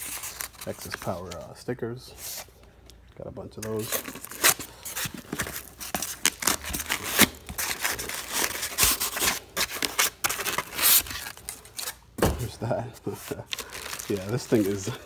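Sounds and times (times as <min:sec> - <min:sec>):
plastic wrapping crinkling: 0:03.6 - 0:12.0, 0:13.0 - 0:15.0.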